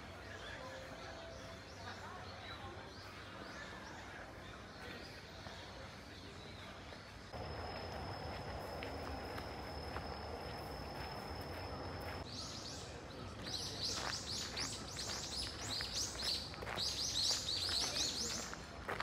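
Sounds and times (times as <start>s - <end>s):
birds chirping: 7.3s - 18.6s.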